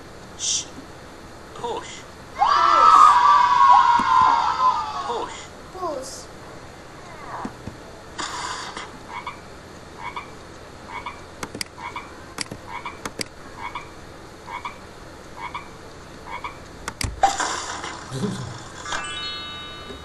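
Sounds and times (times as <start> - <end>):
sharp clicks: 11.4 - 11.7
frog croaking: 13.6 - 14.8, 15.4 - 16.6
short chime: 19.0 - 20.0.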